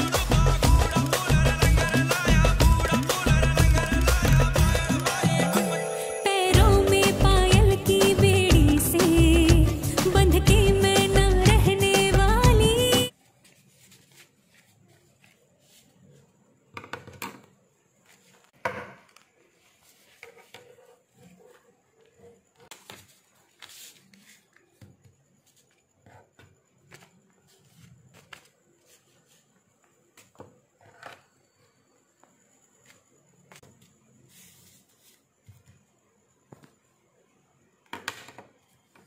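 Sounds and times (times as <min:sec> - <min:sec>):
paper booklet rustling: 0:13.1 - 0:16.3, 0:18.0 - 0:25.8, 0:26.9 - 0:29.6.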